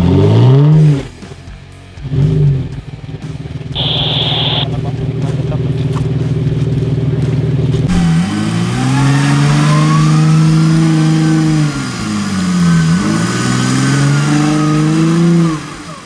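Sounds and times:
engine revving hard: 0.0 - 1.2, 2.0 - 2.8, 7.9 - 16.0.

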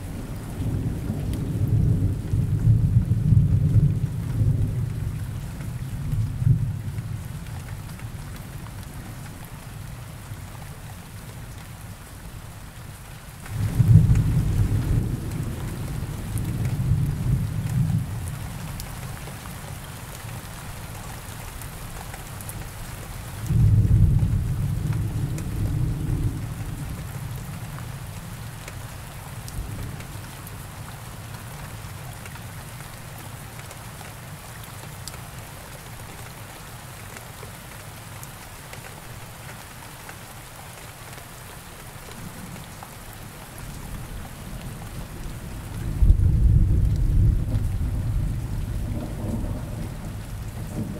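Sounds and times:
steady rain falling: 0.0 - 50.9
low thunder rolling: 13.5 - 18.1, 23.5 - 26.8, 45.2 - 50.9.

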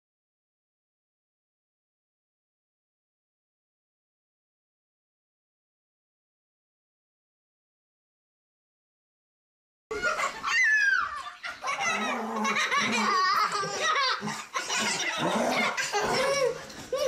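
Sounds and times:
young children laughing: 9.9 - 17.0.

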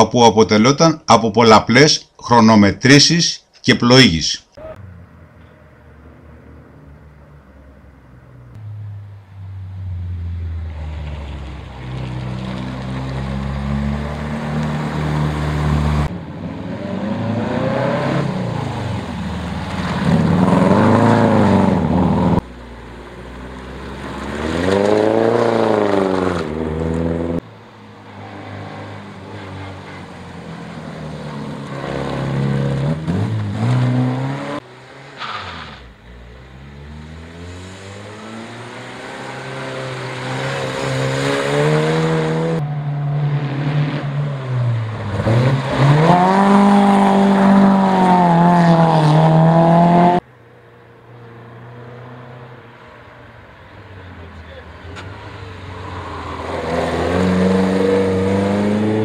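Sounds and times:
rally car engines revving past: 9.6 - 50.2, 54.0 - 59.0.

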